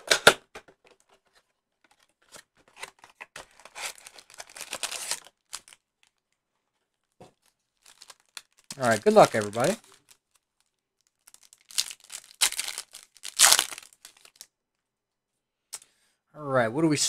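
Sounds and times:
foil packs rustling and scraping: 2.7s - 5.8s, 7.8s - 10.2s
cardboard flap tearing: 3.6s - 5.6s.

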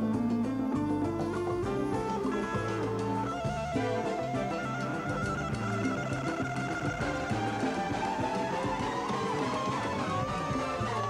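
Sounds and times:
electric guitar lead: 0.0s - 11.0s
rock band playing: 0.2s - 11.0s.

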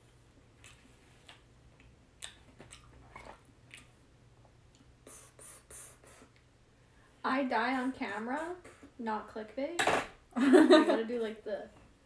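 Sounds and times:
low steady hum: 0.0s - 12.0s
chewing and mouth sounds: 0.5s - 4.9s.

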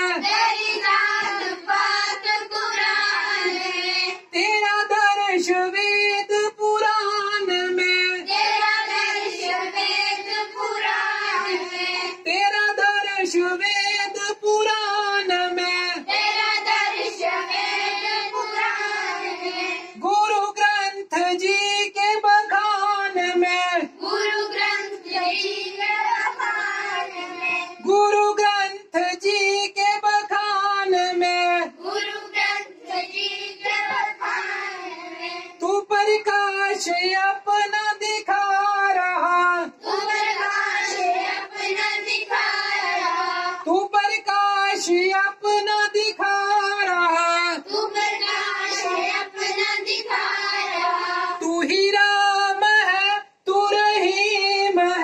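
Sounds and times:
children singing in unison: 0.0s - 4.4s, 8.1s - 12.3s, 15.9s - 20.0s, 23.8s - 27.9s, 31.7s - 35.6s, 39.7s - 43.7s, 47.6s - 51.7s.

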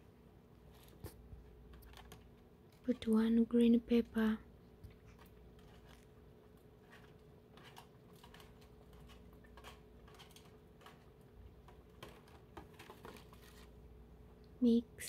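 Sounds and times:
faint steady hum: 0.0s - 15.0s
spoon scraping plastic tray: 5.1s - 6.1s, 6.7s - 13.8s.

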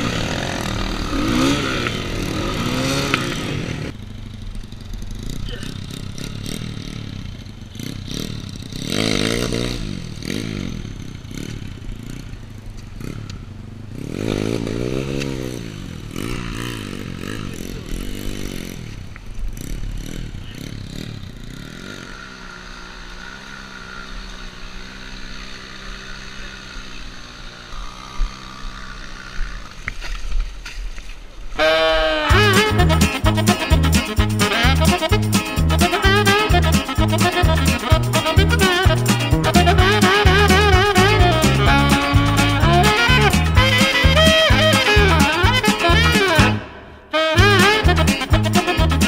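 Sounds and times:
dirt bike engine revving and idling: 0.0s - 30.4s, 31.6s - 49.0s
music: 32.3s - 49.0s.

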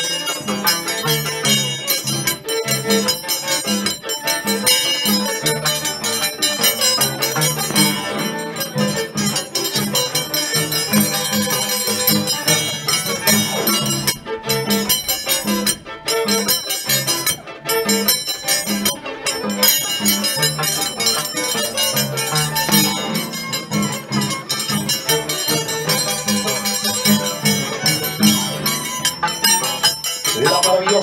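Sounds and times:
bright percussion: 0.0s - 31.0s
live band music: 0.0s - 31.0s.

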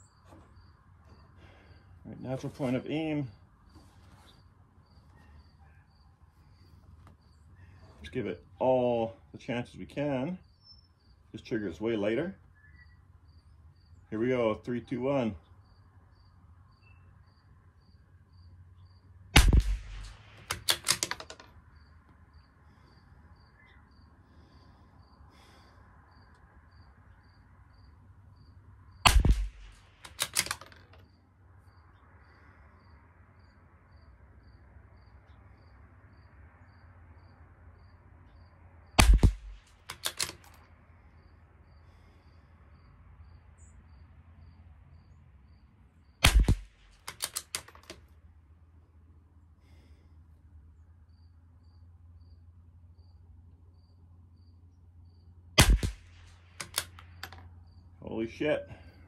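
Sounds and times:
rifle shots: 19.4s - 21.3s, 29.0s - 30.8s, 39.0s - 40.5s, 46.2s - 47.9s, 55.6s - 57.4s
rifle bolt metallic clicks: 19.4s - 21.5s, 29.1s - 31.0s, 39.0s - 40.6s, 46.2s - 48.0s, 55.6s - 57.5s.

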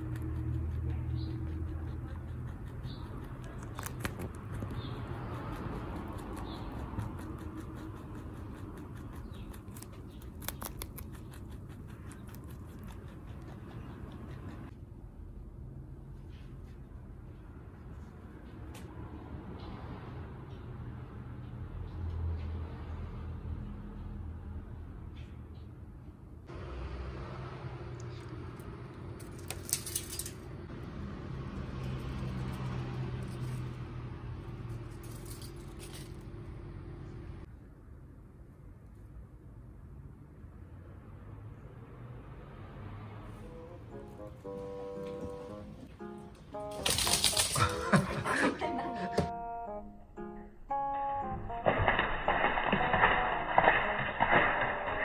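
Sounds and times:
rabbit crunching broccoli: 0.0s - 14.8s, 27.7s - 36.6s.

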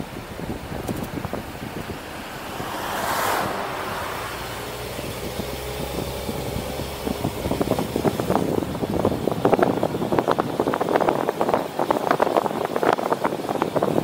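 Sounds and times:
car engine and tyre noise: 0.0s - 14.0s
car whooshing past: 0.8s - 7.4s.

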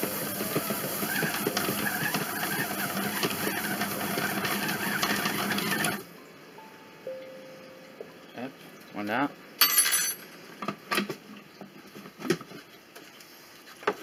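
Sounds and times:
kitchen robot motor running: 0.0s - 6.0s.

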